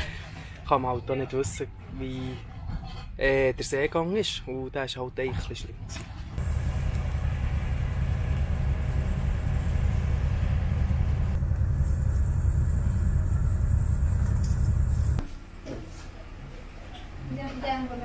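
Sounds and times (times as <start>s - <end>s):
boat engine rumbling: 6.1s - 15.2s.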